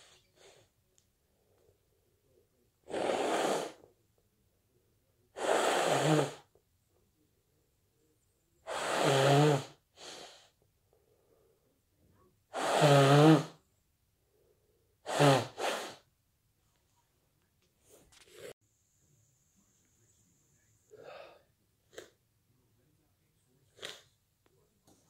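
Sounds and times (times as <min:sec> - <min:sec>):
person sneezing: 0:15.1 - 0:16.0.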